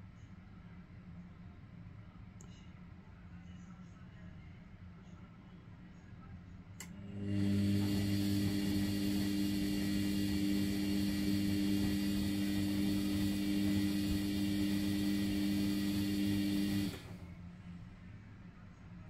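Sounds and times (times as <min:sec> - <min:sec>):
washing machine motor humming: 0:06.8 - 0:17.4
water and laundry churning: 0:07.4 - 0:17.1.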